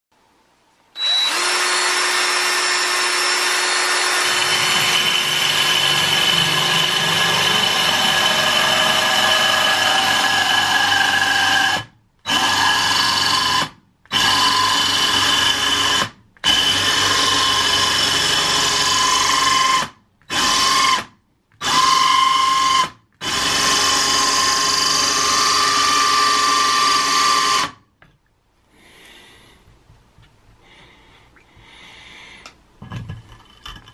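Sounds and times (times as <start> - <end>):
drill grinding into stone: 1.0 - 27.8.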